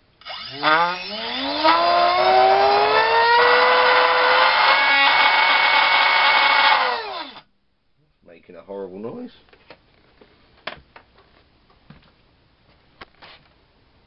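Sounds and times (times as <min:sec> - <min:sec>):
electric motor whine: 0:00.2 - 0:07.4.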